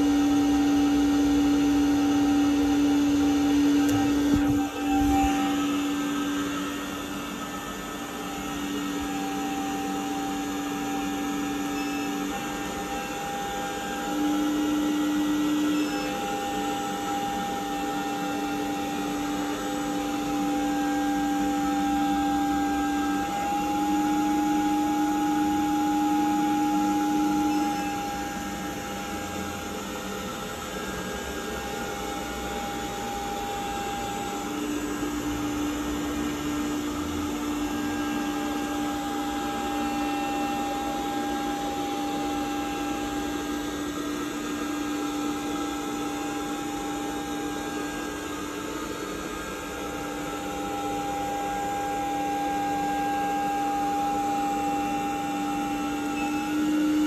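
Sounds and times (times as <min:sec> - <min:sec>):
robot suction fan humming: 0:00.0 - 0:20.8.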